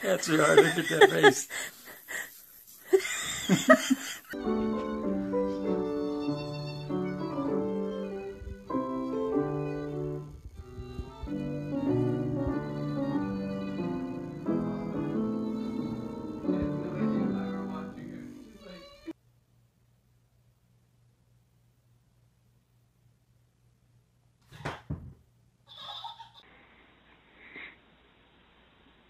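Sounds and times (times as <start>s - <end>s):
slow melody with held notes: 4.4s - 19.1s.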